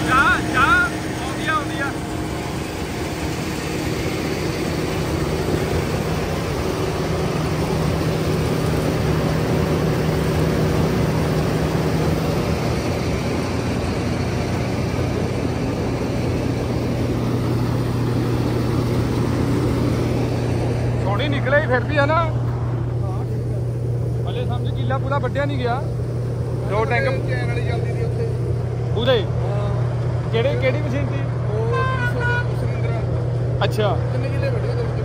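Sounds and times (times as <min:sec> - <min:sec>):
combine harvester engine droning: 0:00.0 - 0:35.0.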